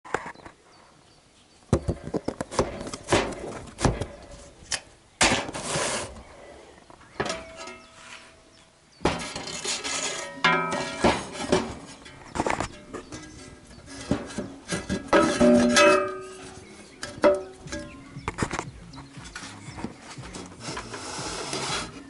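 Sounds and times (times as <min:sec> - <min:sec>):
rustling: 0:01.9 - 0:22.0
board scraping: 0:05.2 - 0:06.6, 0:07.8 - 0:08.4, 0:09.0 - 0:16.7, 0:19.3 - 0:22.0.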